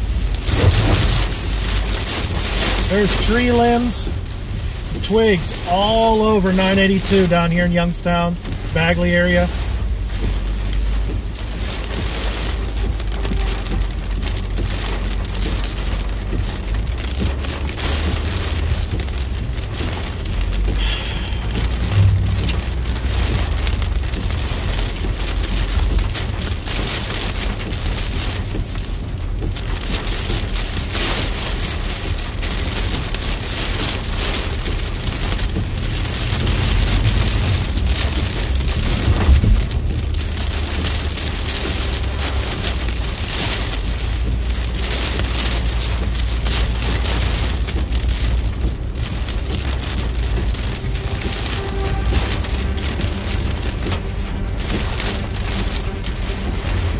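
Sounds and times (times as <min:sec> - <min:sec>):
heavy rain on car windshield: 0:00.0 - 0:56.9
low road rumble: 0:00.0 - 0:56.9
brief low thump: 0:21.4 - 0:23.5.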